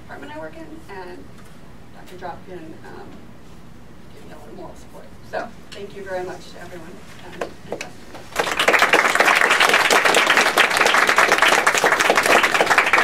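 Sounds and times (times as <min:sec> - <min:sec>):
audience applauding: 0:08.3 - 0:13.0.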